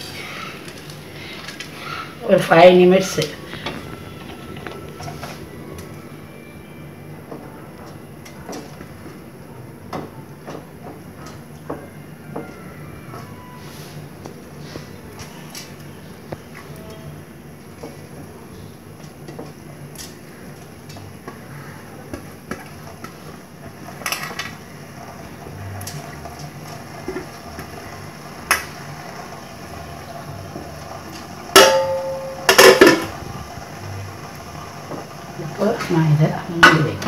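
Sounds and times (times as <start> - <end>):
low steady hum: 24.0 - 37.0
metal pans clanging: 31.5 - 33.2, 36.5 - 37.0
cookware knocking and clinking: 31.6 - 33.1.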